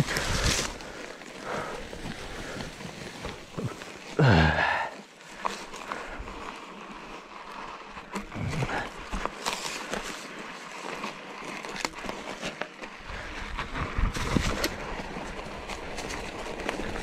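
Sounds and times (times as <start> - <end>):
bike tyres on dirt and roots: 0.0 - 17.0
bike rattling clicks and knocks: 5.3 - 17.0.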